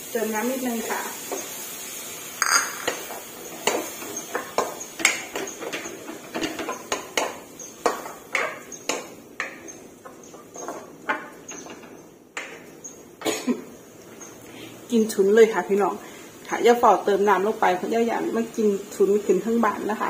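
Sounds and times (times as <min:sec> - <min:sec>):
wooden spatula scraping a wok: 0:00.2 - 0:14.9.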